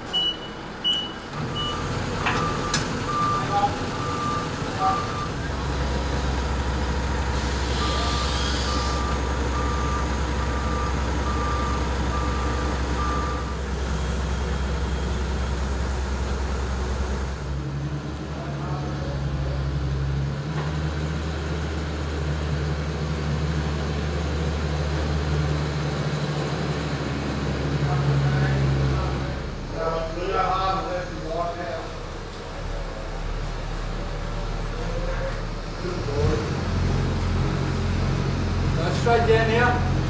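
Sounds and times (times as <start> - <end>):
forklift engine running: 0.0 - 40.0
reversing alarm beeping: 0.1 - 13.6.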